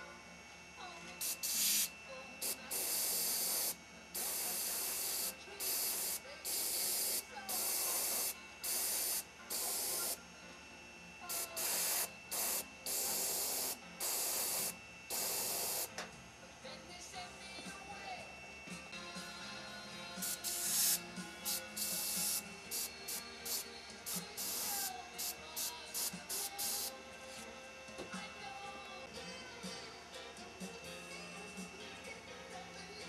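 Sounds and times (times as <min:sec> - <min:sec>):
airbrush spraying hiss: 0:01.2 - 0:10.2, 0:11.3 - 0:15.9, 0:20.2 - 0:27.4.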